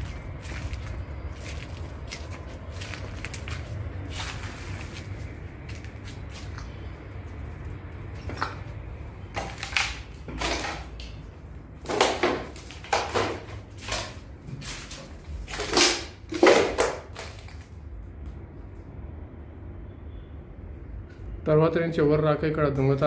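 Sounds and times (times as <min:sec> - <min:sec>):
footsteps crunching over rubble: 0:00.0 - 0:17.9.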